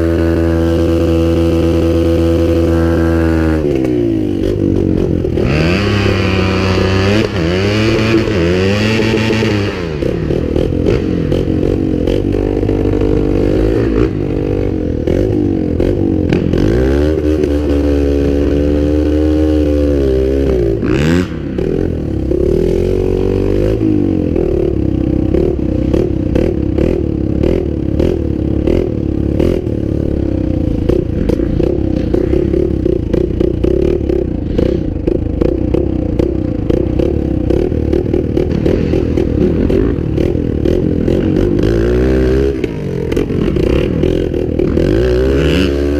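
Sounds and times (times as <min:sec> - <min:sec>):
off-road vehicle engine running: 0:00.0 - 0:45.9.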